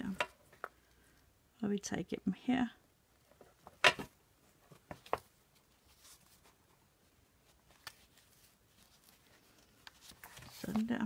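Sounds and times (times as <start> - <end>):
paper rustling: 4.7 - 6.8, 7.4 - 11.0.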